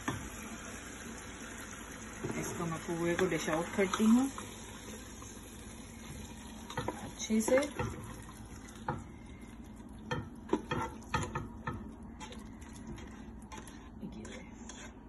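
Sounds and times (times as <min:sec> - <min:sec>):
spatula knocking against pot: 0:10.1 - 0:11.9.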